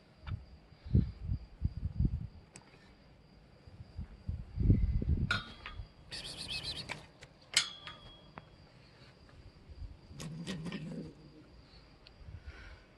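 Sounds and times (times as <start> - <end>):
faint steady high tone: 7.6 - 9.1.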